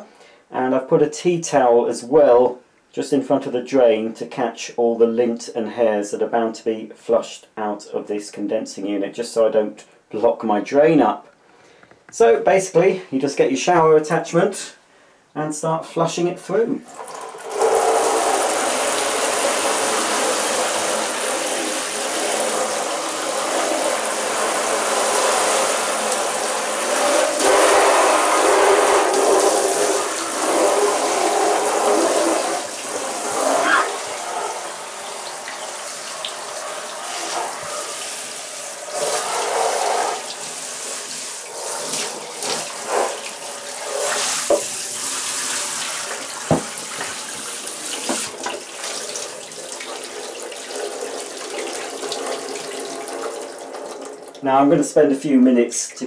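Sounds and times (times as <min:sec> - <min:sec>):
shower spray jetting water: 0:16.9 - 0:54.4
knocks: 0:46.5 - 0:46.7.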